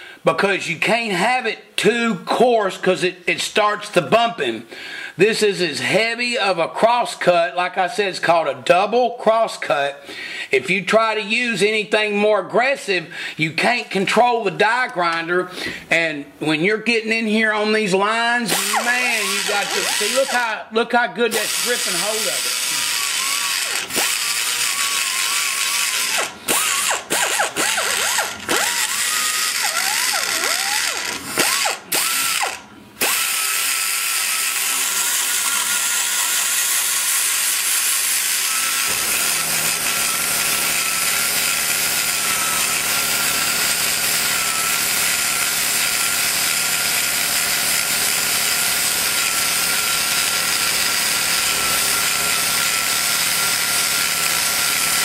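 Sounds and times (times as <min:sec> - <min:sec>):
die grinder cutting metal: 0:18.5 - 0:20.6, 0:21.3 - 0:55.0.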